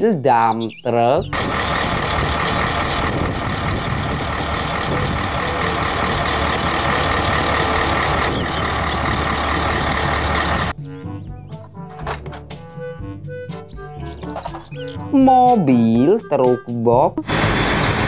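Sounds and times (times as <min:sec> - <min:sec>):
diesel engine humming: 0:01.3 - 0:10.8, 0:17.2 - 0:18.0.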